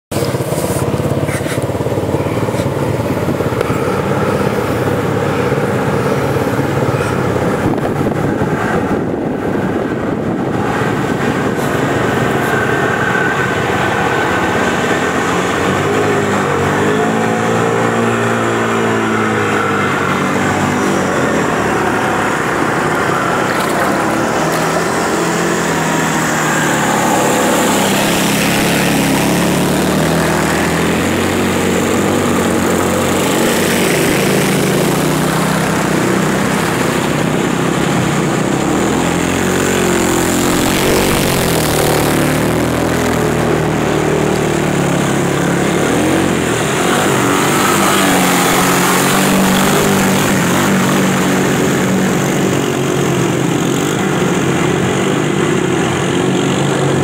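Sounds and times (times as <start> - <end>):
atv engines running: 0.0 - 57.0.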